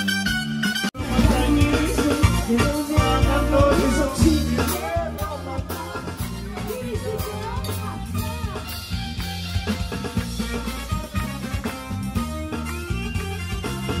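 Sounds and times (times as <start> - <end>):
bass line: 0.0 - 14.0
drum kit beat: 0.0 - 14.0
person singing: 1.0 - 8.8.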